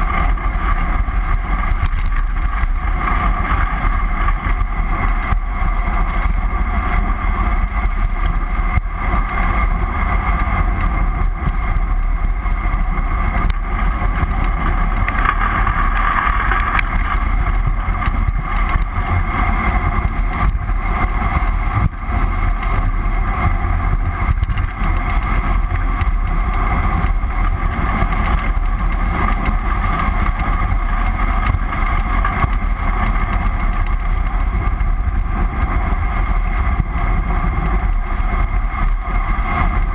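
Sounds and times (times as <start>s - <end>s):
tyres rumbling on asphalt: 0.0s - 39.9s
wind buffeting microphone: 0.0s - 39.9s.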